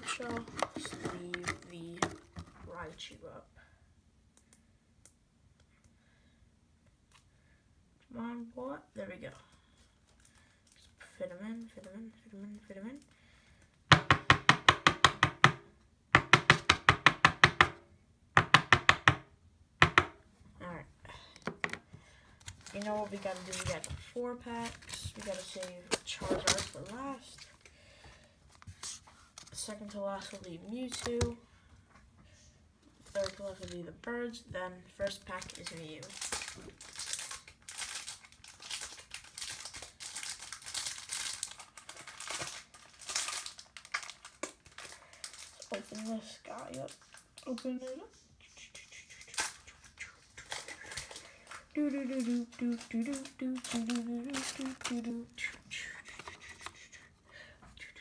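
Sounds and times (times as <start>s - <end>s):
knocks on a tabletop: 19.8s - 20.2s
foil wrapper crinkling: 22.4s - 27.6s, 33.0s - 33.8s, 35.0s - 47.7s, 49.2s - 56.9s.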